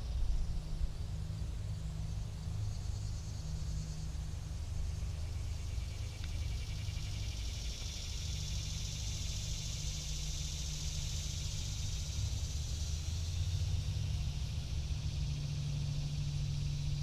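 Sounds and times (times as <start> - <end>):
high-pitched insect chorus: 0.0 - 17.0.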